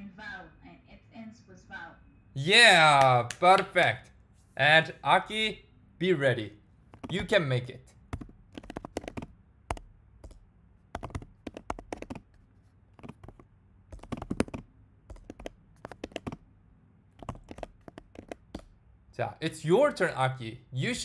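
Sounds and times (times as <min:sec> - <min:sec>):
computer keyboard typing: 0:07.0 - 0:07.4, 0:08.0 - 0:16.4, 0:17.2 - 0:18.7.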